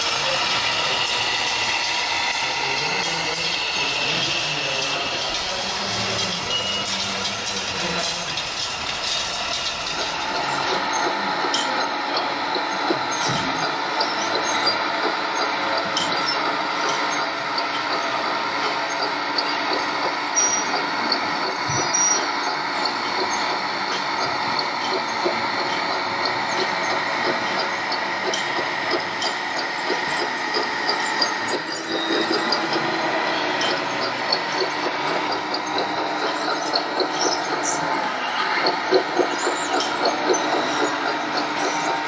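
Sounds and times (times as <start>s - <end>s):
diesel engine sound module: 0.0s - 42.0s.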